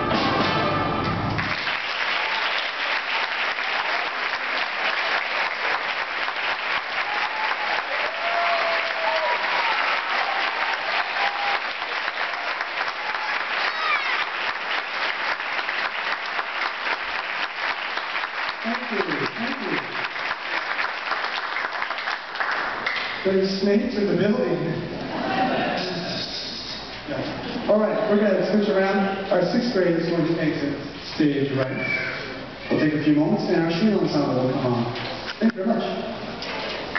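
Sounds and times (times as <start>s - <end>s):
people cheering: 0.0s - 21.9s, 25.1s - 26.1s
audience applauding: 0.0s - 23.2s.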